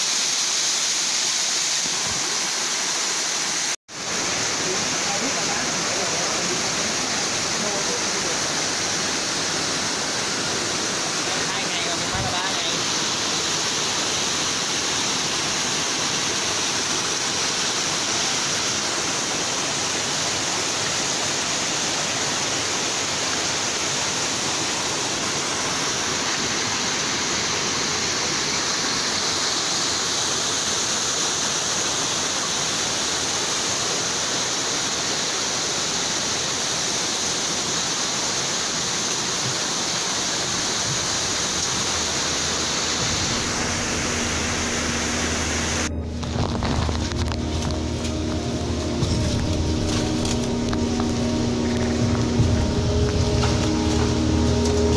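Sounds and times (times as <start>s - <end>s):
water rushing over rocks: 0.0s - 54.9s.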